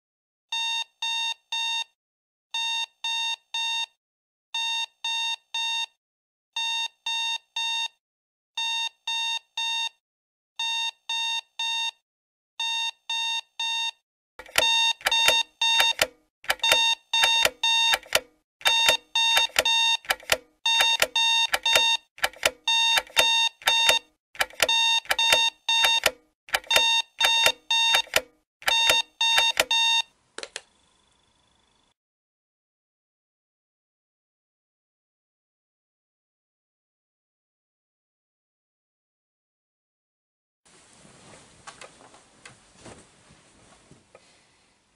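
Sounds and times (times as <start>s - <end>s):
electronic alarm beeping: 12.6s - 22.0s, 22.7s - 30.1s.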